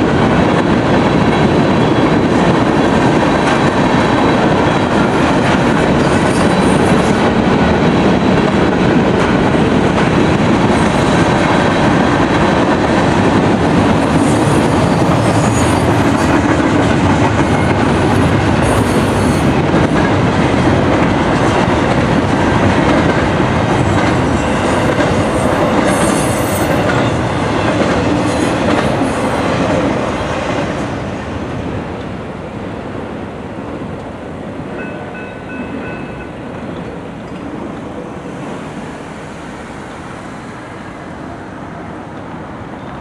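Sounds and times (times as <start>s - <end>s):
clattering train wheels: 0.0s - 31.0s
freight train cars rolling past: 0.0s - 43.0s
street noise: 0.0s - 43.0s.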